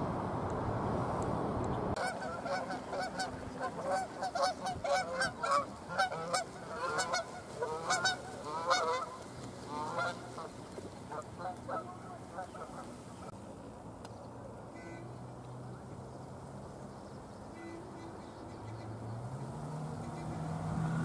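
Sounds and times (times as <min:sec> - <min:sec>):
geese honking: 0:02.0 - 0:13.3.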